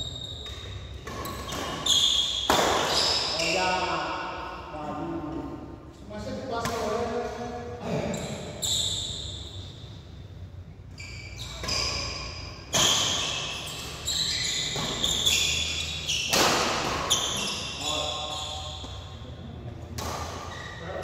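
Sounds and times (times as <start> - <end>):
rackets hitting shuttlecock: 0.4 - 3.6, 11.6 - 14.0, 14.6 - 18.0, 19.9 - 20.5.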